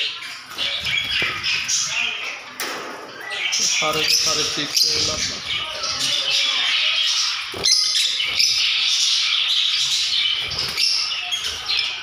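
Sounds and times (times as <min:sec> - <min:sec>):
lovebirds squawking and chattering: 0:00.0 - 0:12.0.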